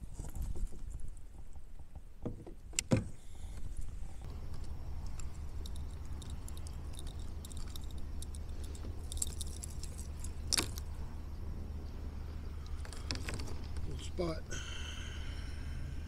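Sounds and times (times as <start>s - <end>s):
steady low hum: 0.0s - 16.0s
fishing lure hooks jingling: 5.1s - 10.8s.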